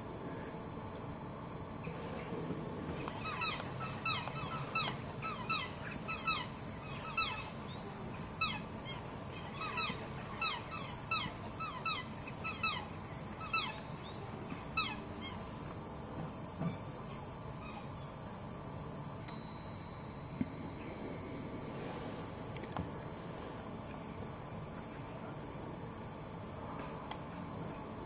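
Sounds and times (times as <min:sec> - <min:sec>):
swan honking: 0:03.2 - 0:07.6, 0:08.4 - 0:13.8.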